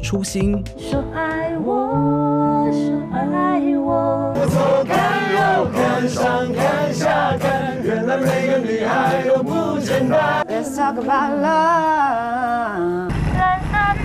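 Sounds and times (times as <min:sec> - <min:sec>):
group singing pop song: 0:00.9 - 0:14.0
strummed acoustic guitars: 0:04.4 - 0:10.4.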